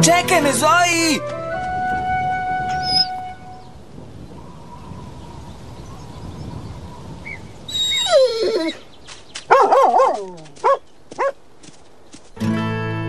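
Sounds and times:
cartoon dog whining: 2.8 - 3.2, 7.7 - 8.8
cartoon dog barking: 9.5 - 11.4.

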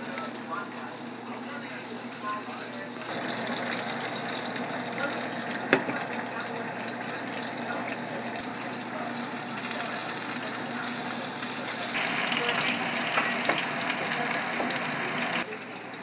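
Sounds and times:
fish sizzling in oil: 0.0 - 16.0.

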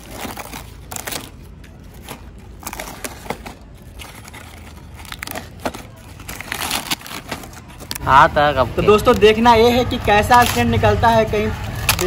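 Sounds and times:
cardboard tearing and crumpling: 0.0 - 8.0.

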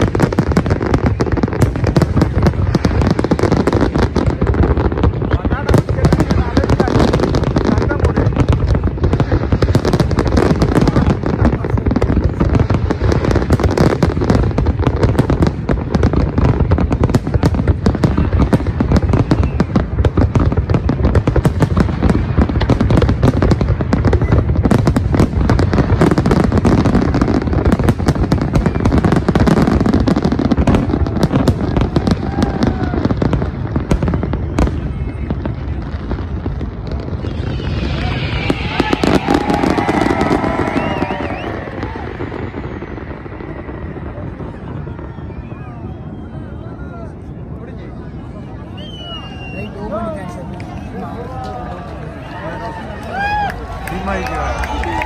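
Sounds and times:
fireworks bangs and crackles: 0.0 - 55.0.

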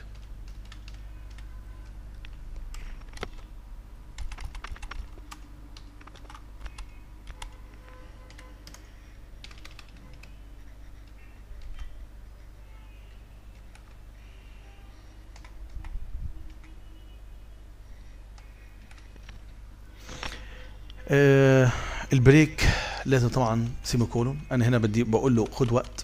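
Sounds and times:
low electrical hum: 0.0 - 26.0.

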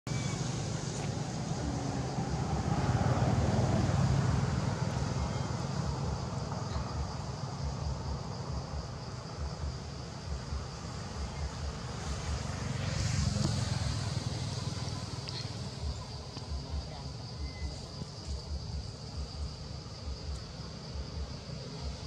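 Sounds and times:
low outdoor rumble: 0.1 - 22.0.

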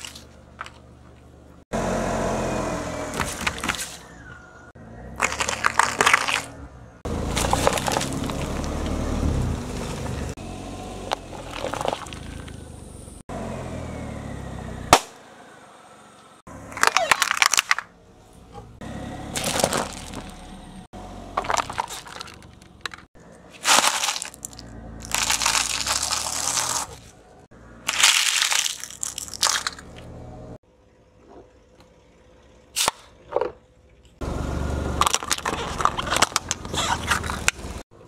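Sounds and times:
car tyre crushing plastic: 5.2 - 6.6, 7.3 - 9.0, 11.1 - 12.6, 16.7 - 18.0, 19.3 - 20.5, 21.3 - 27.2, 27.9 - 30.0, 35.0 - 37.8
sharp snap: 14.9 - 15.2.

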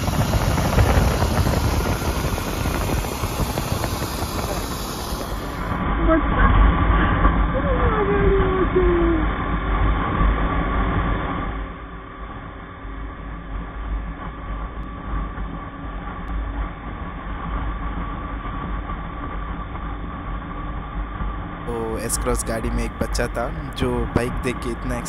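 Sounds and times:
motorcycle engine hum: 0.0 - 6.2, 21.7 - 25.0
wind and road rumble: 0.0 - 11.5.

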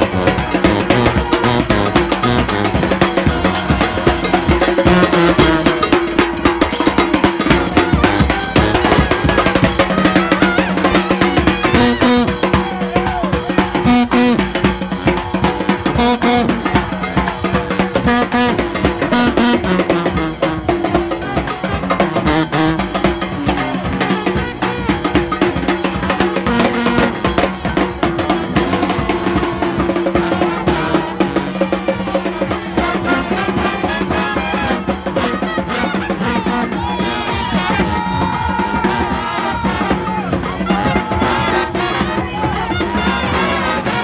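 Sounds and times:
brass band horns: 0.0 - 44.0
busy drum beat: 0.0 - 44.0.

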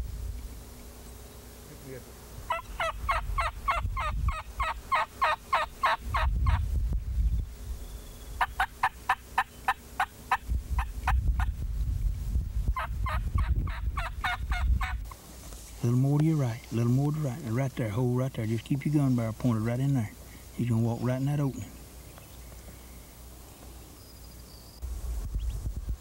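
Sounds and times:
turkey call yelping: 2.5 - 6.6, 8.4 - 10.9, 12.8 - 15.0.

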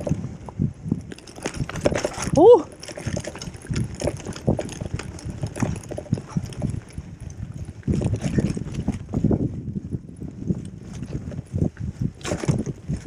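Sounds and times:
bike rattling and knocking: 0.0 - 13.0
tyre and wind rumble: 0.0 - 13.0.

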